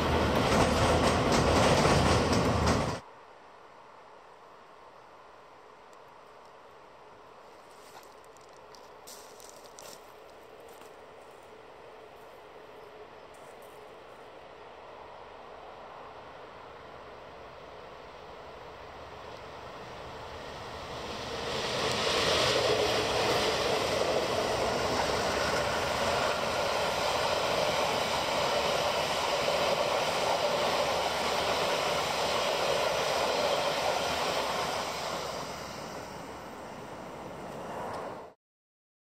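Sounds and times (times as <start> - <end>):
carriages rolling on rails: 0.0 - 3.0, 18.4 - 38.1
diesel locomotive passing: 0.0 - 3.1, 7.5 - 38.4.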